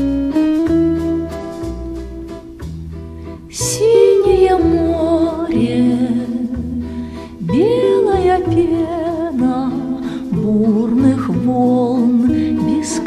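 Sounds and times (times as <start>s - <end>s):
acoustic guitar plucking: 0.0s - 13.0s
woman singing with vibrato: 3.5s - 13.0s.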